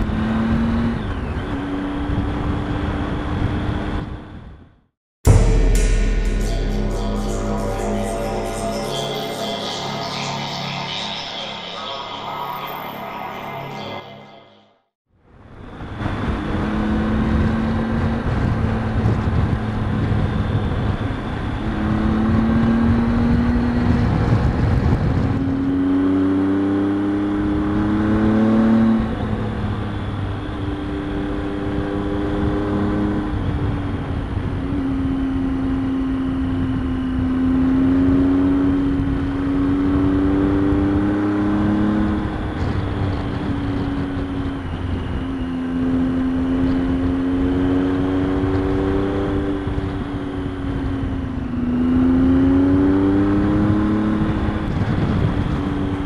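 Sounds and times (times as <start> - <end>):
motorcycle engine accelerating: 0.0 - 4.3, 16.1 - 56.0.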